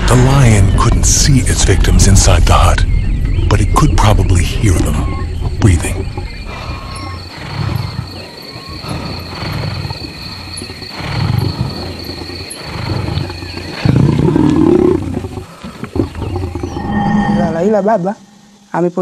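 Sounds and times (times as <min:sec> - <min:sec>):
lion growling and roaring: 0:05.8 - 0:17.6.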